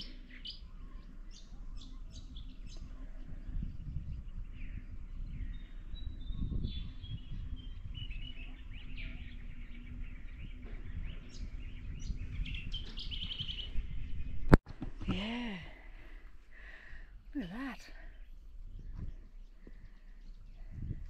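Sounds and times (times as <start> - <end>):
bird trill: 0.0 - 14.5
birds chirping and whistling: 0.0 - 16.2, 16.8 - 21.0
wind rumble on microphone: 0.0 - 21.0.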